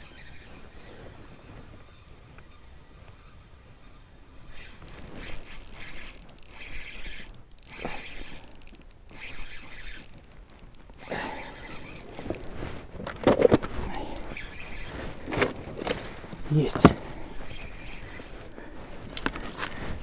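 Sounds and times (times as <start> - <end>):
fishing reel gears whining: 4.5 - 12.7, 14.2 - 14.9, 17.2 - 19.4
knocks from fishing reel: 4.5 - 12.7.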